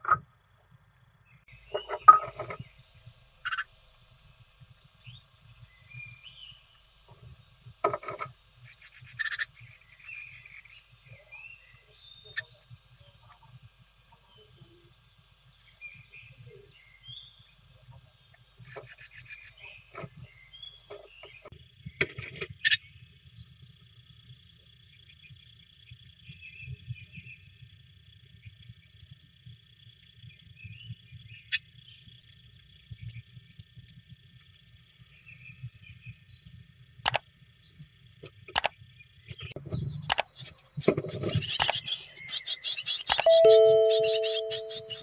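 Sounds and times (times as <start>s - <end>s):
nestlings chirping: 39.7s - 45.0s.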